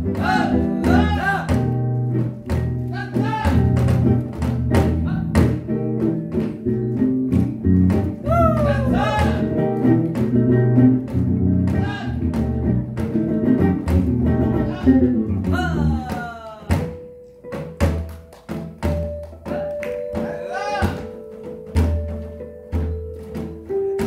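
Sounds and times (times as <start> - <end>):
electric bass: 0.0 - 16.1
jazz guitar playing: 0.0 - 24.0.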